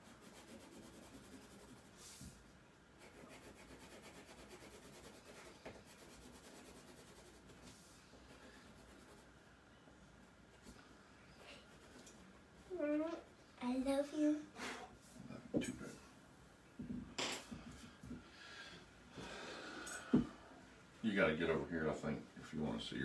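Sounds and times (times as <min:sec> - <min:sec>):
pencil scratching on paper: 0:00.0 - 0:02.2, 0:03.0 - 0:09.3, 0:11.6 - 0:12.2.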